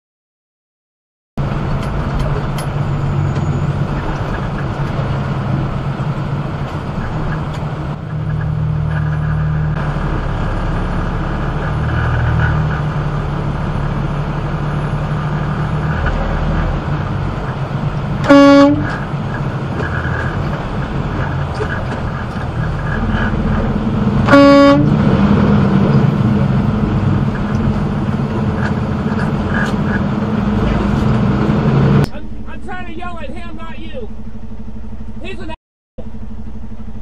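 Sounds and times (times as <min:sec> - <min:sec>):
diesel truck engine running: 0:01.4 - 0:37.0
truck horn blast: 0:18.2 - 0:19.4, 0:24.1 - 0:25.6.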